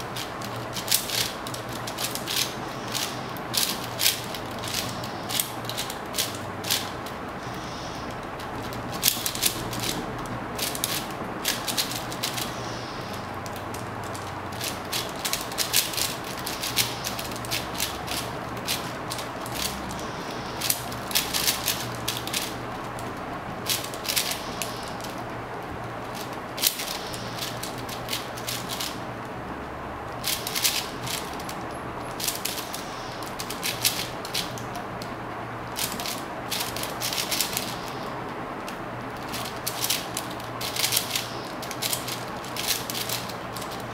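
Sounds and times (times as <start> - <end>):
plastic cube layers clicking: 0.0 - 6.9, 10.6 - 23.0, 30.2 - 31.6, 35.8 - 37.8, 39.2 - 43.9.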